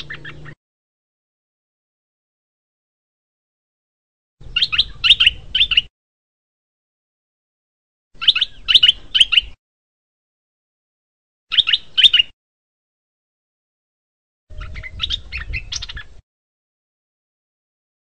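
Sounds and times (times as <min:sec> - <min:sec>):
bulbul chirping: 0:00.0 - 0:00.6, 0:04.4 - 0:05.9, 0:08.2 - 0:09.6, 0:11.5 - 0:12.3.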